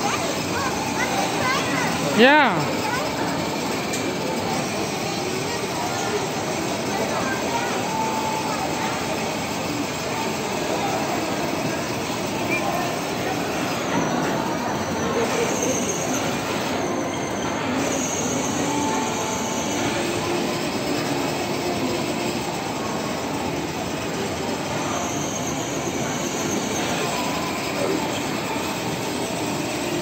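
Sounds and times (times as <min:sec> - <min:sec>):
toy car electric motors whining: 0:00.0 - 0:30.0.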